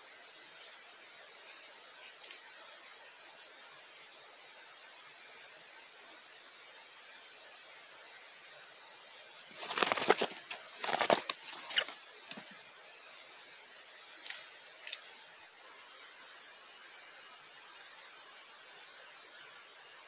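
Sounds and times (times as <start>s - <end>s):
steady high hiss: 0.0s - 20.0s
handling rustling and clattering: 9.6s - 12.5s.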